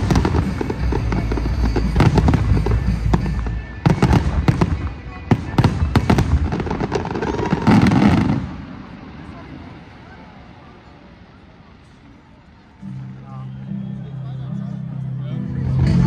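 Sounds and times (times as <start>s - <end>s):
fireworks bangs and crackles: 0.0s - 11.2s.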